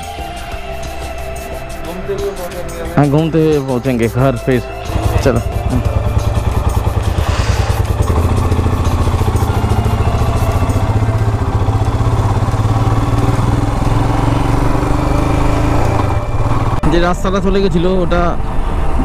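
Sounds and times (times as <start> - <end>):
motorcycle engine pulling away: 4.7 - 17.3.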